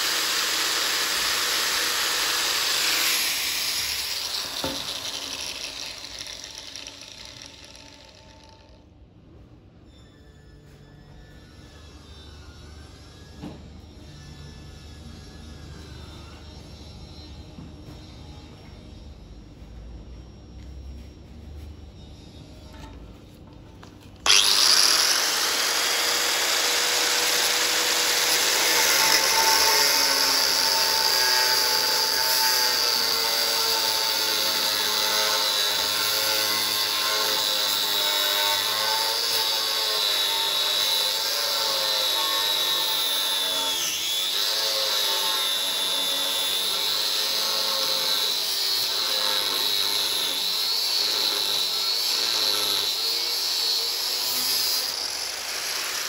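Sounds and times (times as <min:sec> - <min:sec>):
angle grinder cutting steel: 0:00.0 - 0:08.8, 0:24.2 - 0:56.0.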